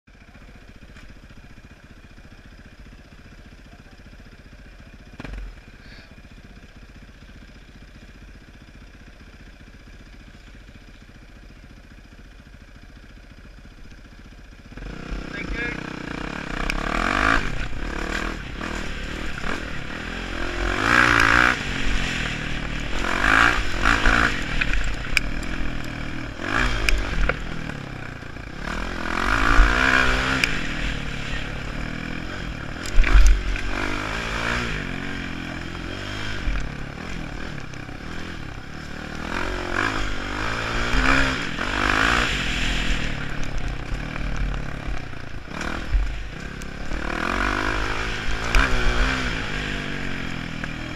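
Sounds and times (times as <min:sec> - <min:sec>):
bike rattling: 0:13.4 - 0:50.9
dirt bike engine revving: 0:14.6 - 0:50.9.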